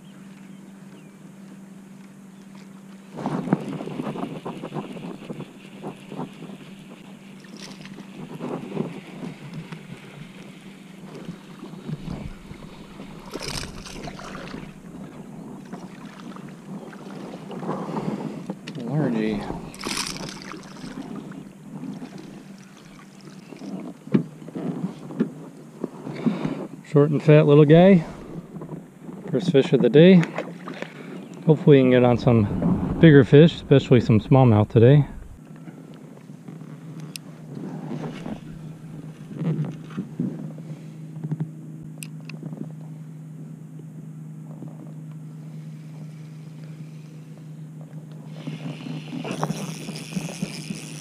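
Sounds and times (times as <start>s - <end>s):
low mechanical hum: 0.0s - 51.0s
fish splashing at the surface: 12.3s - 14.8s, 19.6s - 23.6s
fishing reel clicks and rattles: 12.8s - 14.8s, 19.4s - 21.2s, 48.3s - 51.0s.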